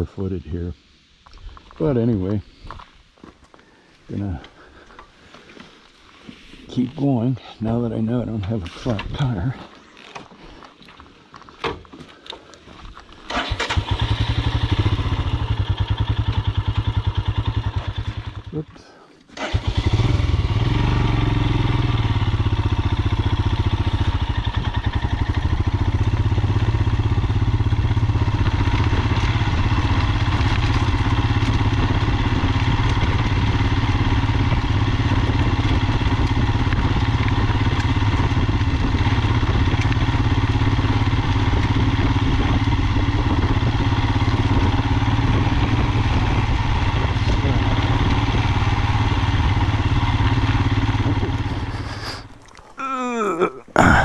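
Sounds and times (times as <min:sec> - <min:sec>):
tyres on gravel road: 0:00.5 - 0:54.0
motorcycle engine running: 0:13.3 - 0:18.7, 0:19.4 - 0:52.3.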